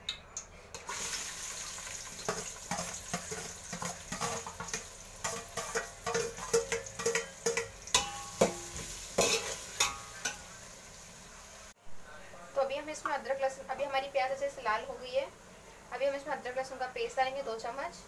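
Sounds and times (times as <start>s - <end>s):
onions sizzling in oil: 0.8s - 11.8s
metal spatula tapping and scraping: 2.2s - 10.6s
ringing metal clanks: 8.0s - 8.6s.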